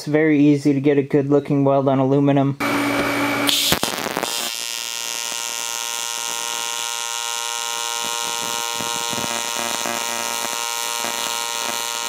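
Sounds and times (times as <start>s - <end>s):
welding arc electric buzz: 2.6s - 12.0s.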